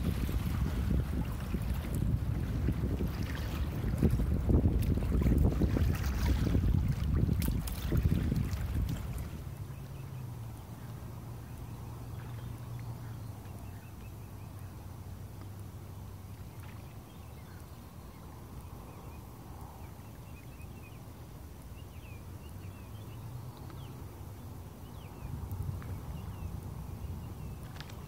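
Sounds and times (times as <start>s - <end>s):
water rumbling around a kayak: 0.0s - 28.0s
faint bird chirps: 9.6s - 15.6s.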